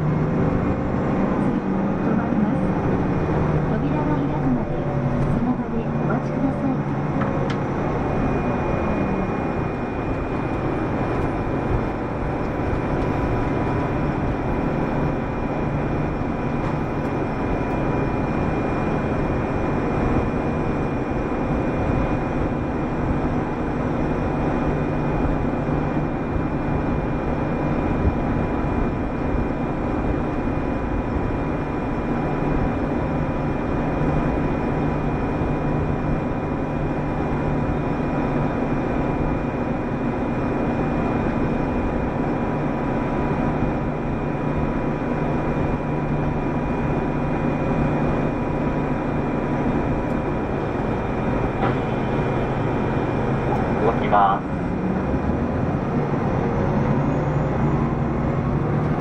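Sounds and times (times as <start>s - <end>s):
bus diesel engine drone: 0.0s - 59.0s
road noise: 0.0s - 59.0s.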